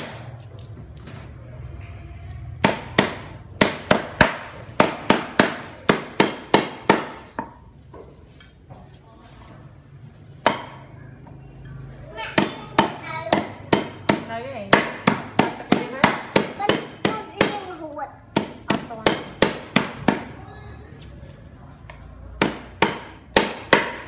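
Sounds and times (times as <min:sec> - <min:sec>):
cleaver chopping on wooden block: 0:02.6 - 0:07.6, 0:12.4 - 0:17.6, 0:18.3 - 0:20.3, 0:22.4 - 0:24.0.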